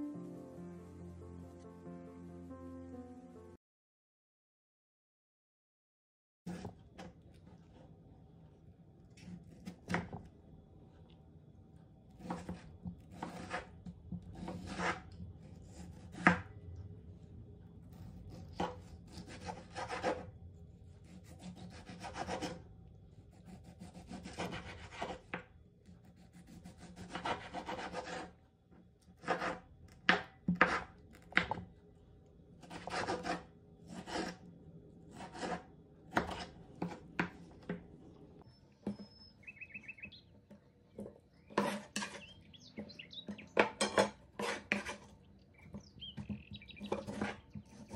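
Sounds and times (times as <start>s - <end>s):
knife sawing through tomato: 12.2s - 13.8s, 14.4s - 16.4s, 17.9s - 20.3s, 20.9s - 22.6s, 23.2s - 25.4s, 26.0s - 28.4s, 29.2s - 29.6s, 32.6s - 34.5s, 35.1s - 36.9s, 44.4s - 45.1s.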